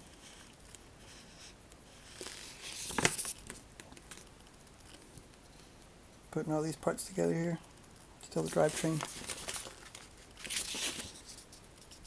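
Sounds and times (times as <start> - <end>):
paper crackle: 1.9 - 5.3, 8.2 - 12.0
paper pages rustling: 2.0 - 5.0, 8.3 - 12.0.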